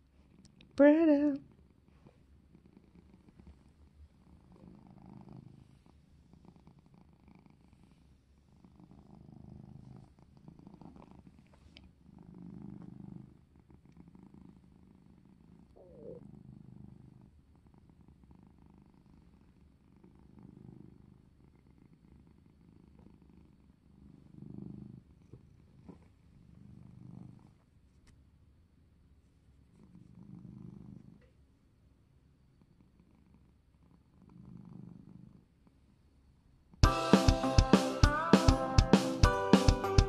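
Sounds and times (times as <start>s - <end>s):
cat purring: 0.0s - 28.1s, 29.0s - 36.8s.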